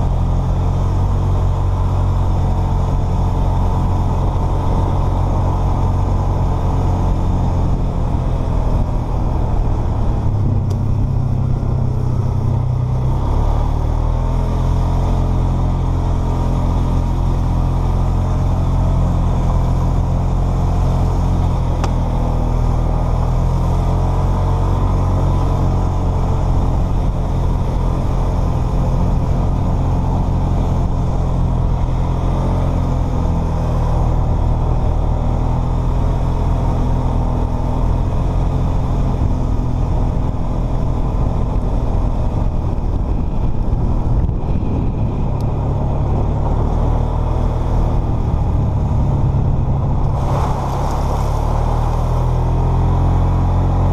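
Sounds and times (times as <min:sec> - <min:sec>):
atv engine running: 0:00.0 - 0:53.9.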